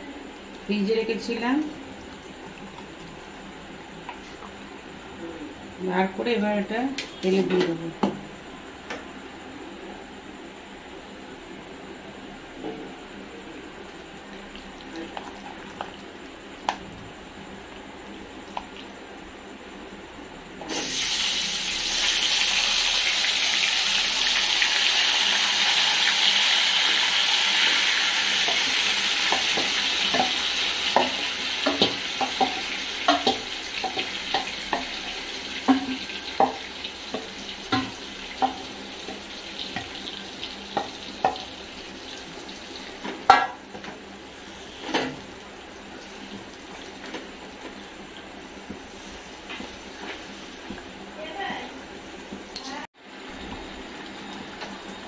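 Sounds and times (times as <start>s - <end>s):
meat sizzling in hot oil: 20.7s - 50.9s
spatula knocking against wok: 35.7s - 38.7s.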